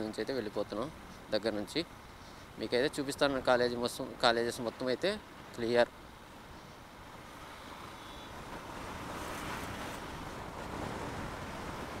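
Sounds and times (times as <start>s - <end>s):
wind rushing on microphone: 6.4s - 12.0s.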